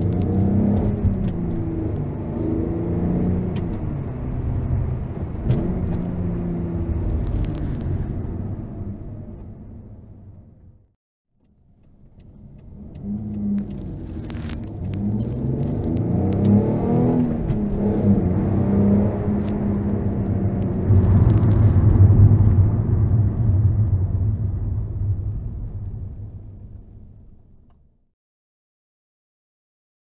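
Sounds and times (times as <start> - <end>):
car engine running: 0.0 - 10.8, 11.4 - 27.8.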